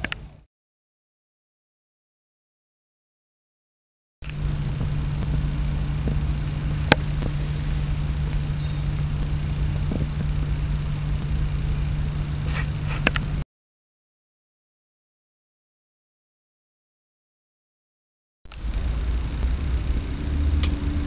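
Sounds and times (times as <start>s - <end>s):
rumbling background noise: 4.2s - 13.4s, 18.5s - 21.0s
steady low hum: 4.2s - 13.4s, 18.5s - 21.0s.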